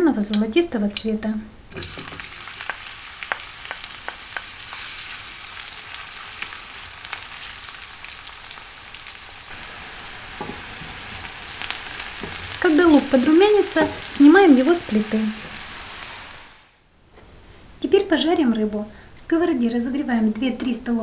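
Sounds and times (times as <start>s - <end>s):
onion sizzling in oil: 1.7s - 16.8s
wooden spoon stirring in pan: 2.0s - 16.5s.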